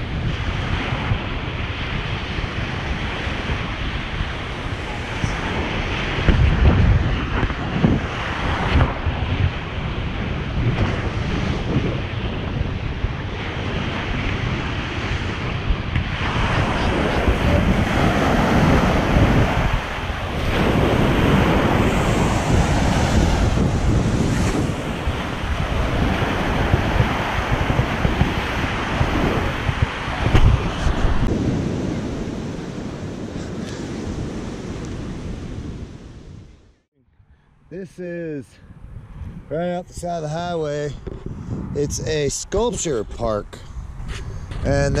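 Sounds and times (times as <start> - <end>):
waves breaking on beach: 0.0 - 36.6
wind buffeting microphone: 0.0 - 37.7, 38.3 - 45.0.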